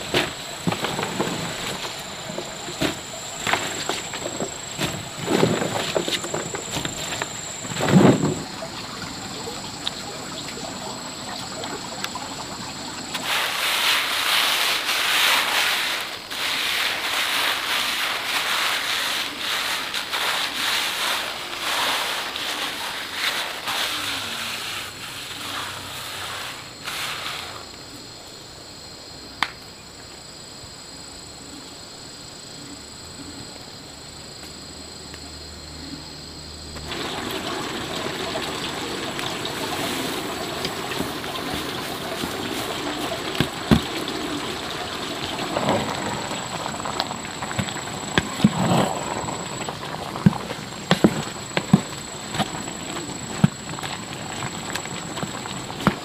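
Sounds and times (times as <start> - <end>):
loud scraping and rustling: 0.0 - 9.2, 13.1 - 27.7, 36.8 - 56.0.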